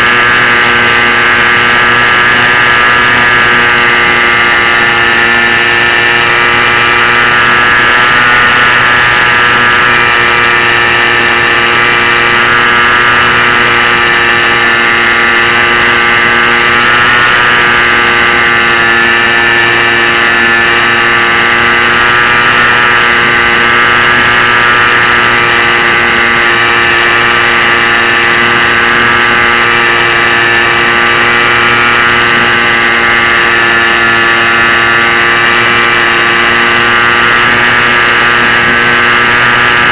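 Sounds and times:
model airplane motor whine: 0.0s - 39.9s.

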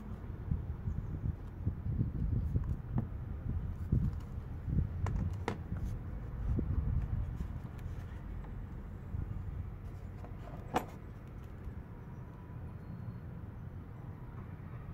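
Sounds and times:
plastic case handling rumble: 5.0s - 5.9s, 9.9s - 11.4s.

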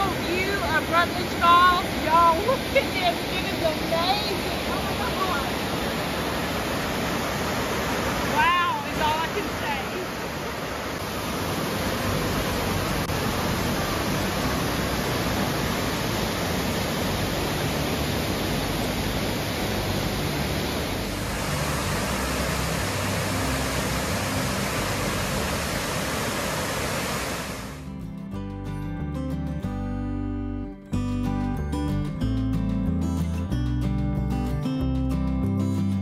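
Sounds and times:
waterfall rushing: 0.0s - 27.9s.

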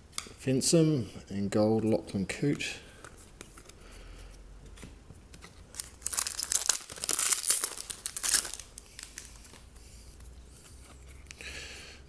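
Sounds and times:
card pack wrapper crinkling and tearing: 5.7s - 9.6s.

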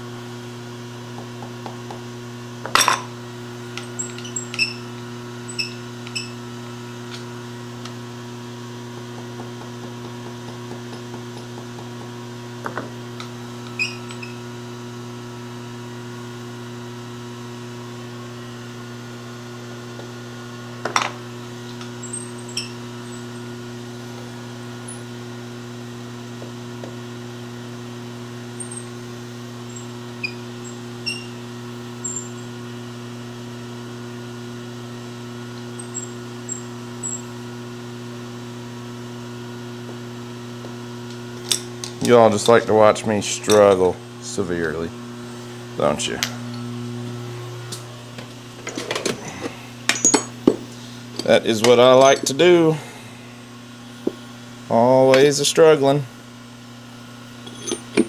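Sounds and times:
steady shop hum: 0.0s - 58.0s.

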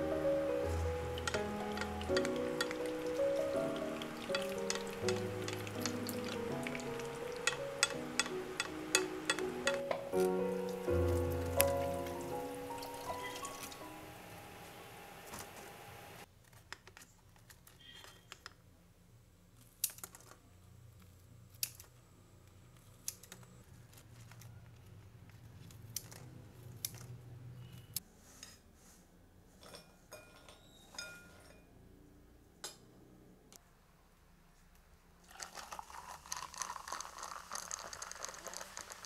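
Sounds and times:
utensils tapping a frying pan: 1.0s - 10.3s.

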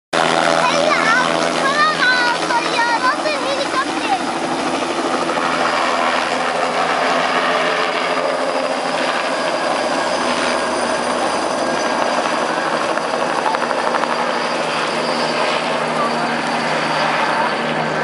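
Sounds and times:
helicopter turbine and rotor: 0.2s - 18.0s.

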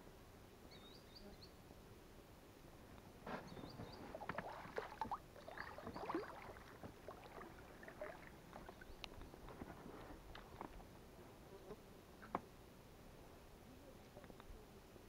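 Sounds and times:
water slapping against boat: 3.8s - 8.8s.

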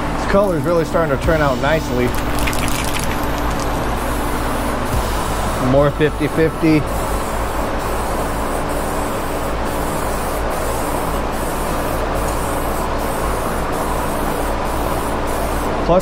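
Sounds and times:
steady low hum: 0.0s - 16.0s
aerosol spray can hissing: 1.4s - 4.3s, 6.3s - 15.8s.

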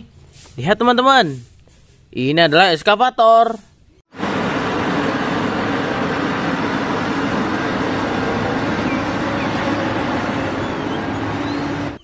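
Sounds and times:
excavator diesel engine running: 4.1s - 12.0s.

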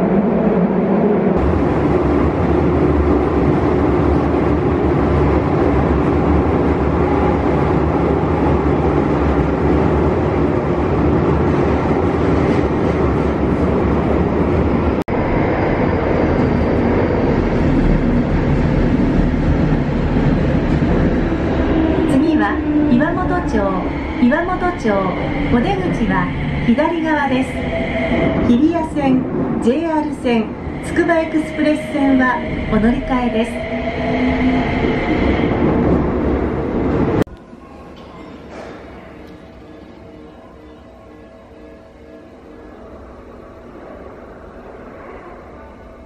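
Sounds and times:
train wheels rumbling on rail: 1.1s - 37.3s.

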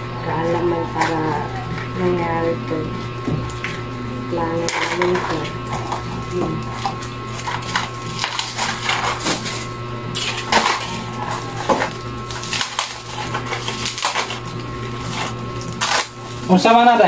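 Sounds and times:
packaging crinkling and rustling: 4.7s - 16.6s.

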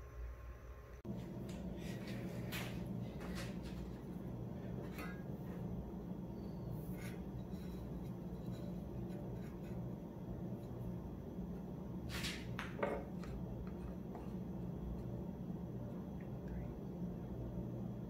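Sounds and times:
steady low hum: 0.0s - 18.0s
steel rule scraping on plywood: 6.8s - 9.9s.

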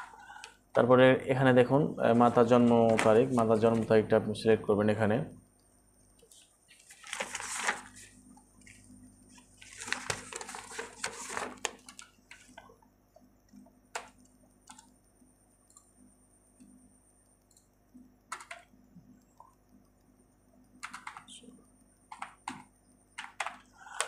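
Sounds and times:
soft hissing noise: 6.0s - 13.4s.

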